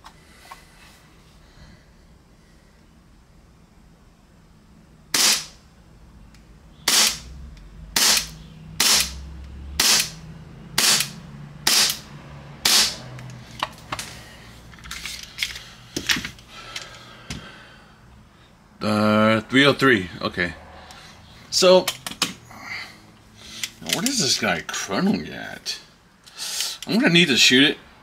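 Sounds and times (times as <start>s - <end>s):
airsoft pistol shots: 5.1s - 5.6s, 6.9s - 7.3s, 7.9s - 9.2s, 9.8s - 10.2s, 10.8s - 12.0s, 12.6s - 13.0s.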